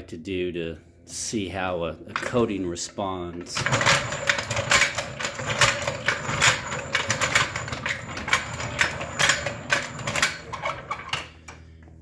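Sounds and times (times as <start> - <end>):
floor jack wheels rumbling: 3.3 - 11.3
metal frame rattling: 3.4 - 11.3.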